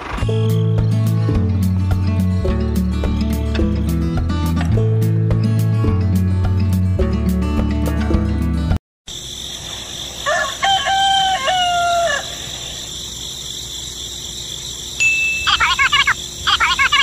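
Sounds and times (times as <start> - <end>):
rooster crowing: 10.2 - 12.7
rapid high chirping: 12.3 - 17.0.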